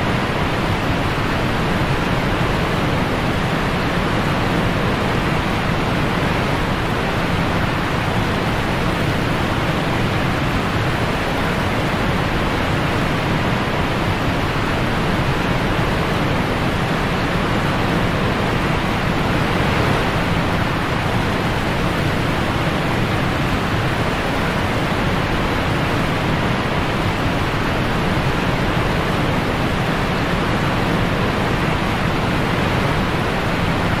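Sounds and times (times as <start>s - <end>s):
whitewater rapids rushing: 0.0s - 34.0s.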